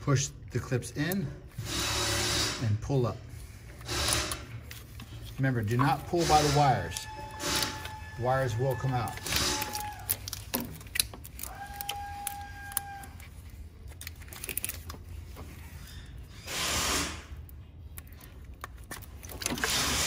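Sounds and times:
plastic connectors clicking and rattling: 0:08.6 - 0:15.1.

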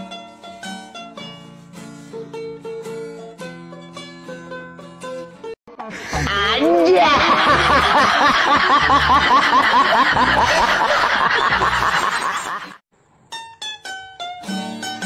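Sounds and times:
plucked-string music: 0:00.0 - 0:08.0, 0:13.2 - 0:15.0
rapid high-pitched laughter: 0:06.0 - 0:12.8.

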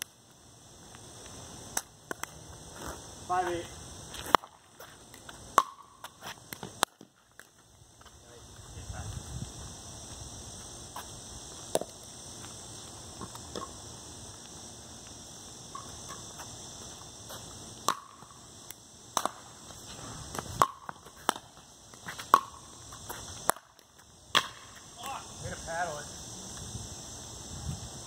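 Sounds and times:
high drone of insects: 0:00.0 - 0:28.0
ball bouncing on concrete: 0:01.8 - 0:02.9, 0:04.1 - 0:08.1, 0:11.7 - 0:12.0, 0:13.2 - 0:13.8, 0:17.3 - 0:19.5, 0:20.3 - 0:25.2
paddles striking pickleball: 0:04.2 - 0:07.5, 0:17.8 - 0:18.3, 0:19.2 - 0:19.5, 0:20.3 - 0:24.8.

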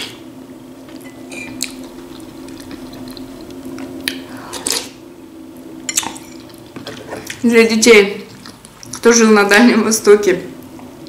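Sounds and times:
low steady hum: 0:00.0 - 0:11.0
chewing: 0:00.9 - 0:04.9, 0:08.3 - 0:09.1.

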